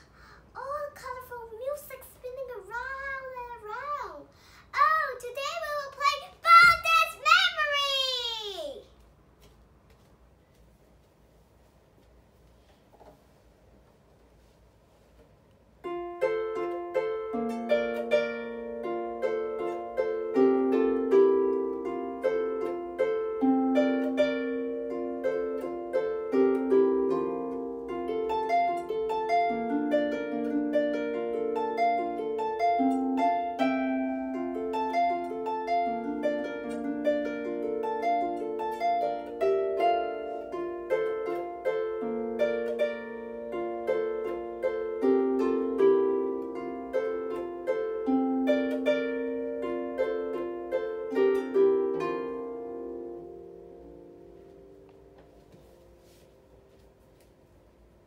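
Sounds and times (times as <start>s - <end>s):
plucked harp melody: 15.8s - 57.8s.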